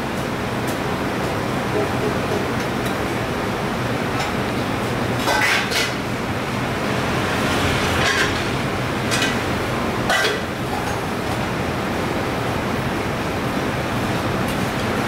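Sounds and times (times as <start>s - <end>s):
road traffic rumble: 3.8s - 14.8s.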